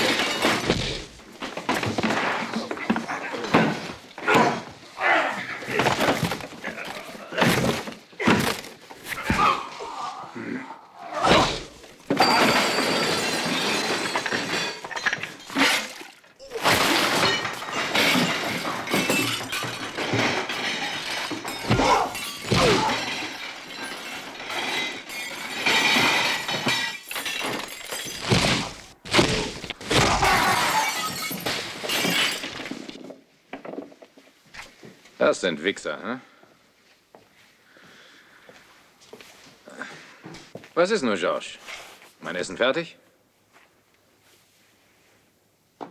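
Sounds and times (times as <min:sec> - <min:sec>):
punches and thuds: 0:00.0 - 0:02.4, 0:11.2 - 0:11.8, 0:28.2 - 0:30.6
glass crashing and shattering: 0:00.0 - 0:04.0, 0:11.3 - 0:33.1.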